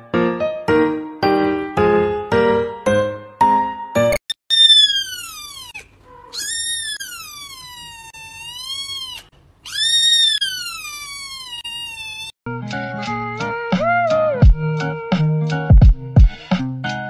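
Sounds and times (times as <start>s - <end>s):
kitten meowing: 4.5s - 12.4s.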